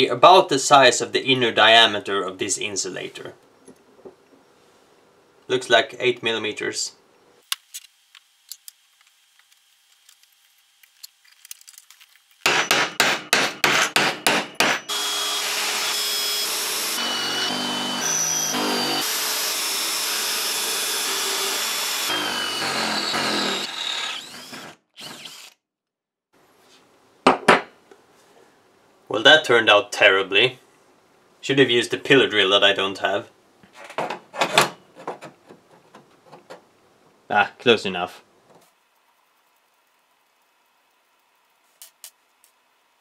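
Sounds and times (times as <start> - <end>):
cordless drill boring metal: 14.9 - 25.6.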